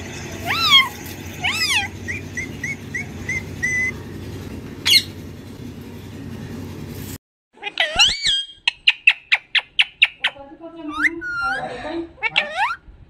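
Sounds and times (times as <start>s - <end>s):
parakeet squawking and chirping: 0.4s - 4.2s, 4.8s - 5.2s, 7.6s - 12.9s.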